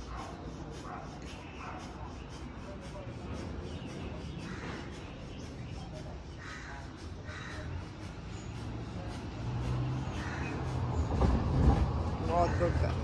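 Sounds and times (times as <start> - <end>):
crows cawing: 4.4 - 5.5, 6.2 - 8.4, 9.8 - 11.1, 12.2 - 13.0.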